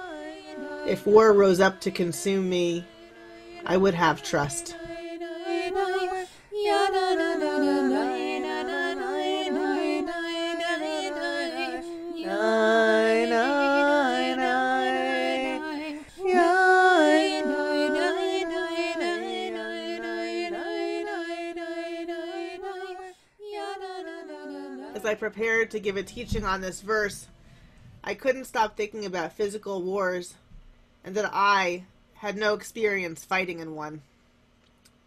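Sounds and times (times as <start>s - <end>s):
women singing a chant: 0.0s - 27.1s.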